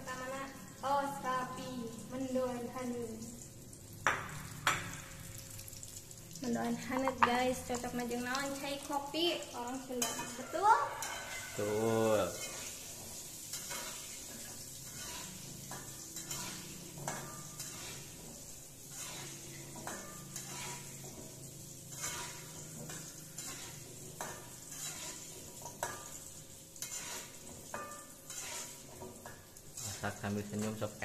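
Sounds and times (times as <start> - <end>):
food sizzling in hot oil: 0.0 - 31.0
metal spatula scraping wok: 9.7 - 30.9.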